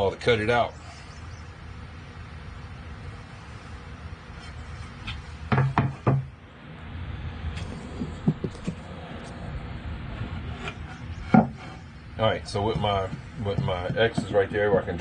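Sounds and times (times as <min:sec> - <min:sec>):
steady low hum: 0:00.0 - 0:15.0
wooden board knocking on workbench: 0:05.5 - 0:06.3, 0:11.3 - 0:11.6.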